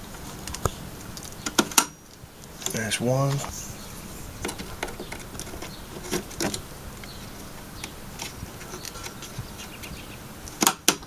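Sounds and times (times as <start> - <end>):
latches snapping shut: 10.6 - 11.0.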